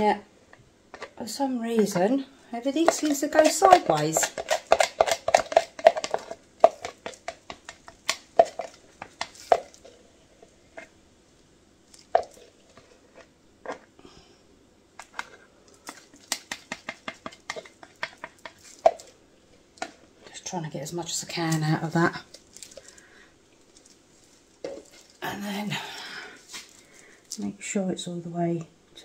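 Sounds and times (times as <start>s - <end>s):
stir stick scraping plastic cup: 1.8s - 10.0s.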